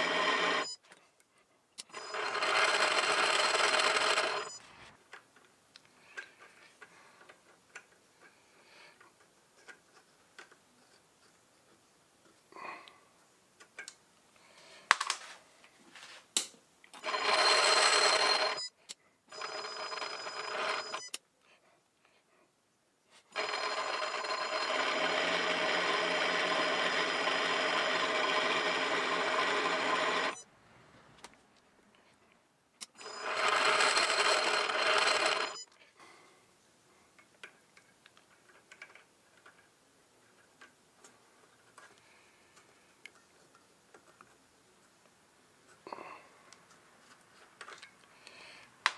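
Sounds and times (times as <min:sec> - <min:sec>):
metal lathe motor whining: 0:00.0 - 0:00.7, 0:02.0 - 0:04.5, 0:17.0 - 0:18.6, 0:23.4 - 0:30.4, 0:33.0 - 0:35.6.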